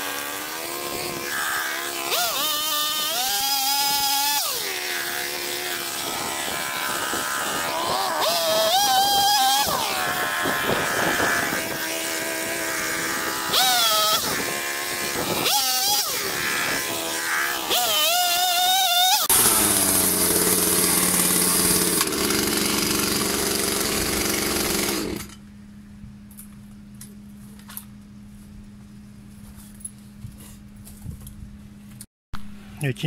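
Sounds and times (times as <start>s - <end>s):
chainsaw cutting wood: 0.0s - 25.4s.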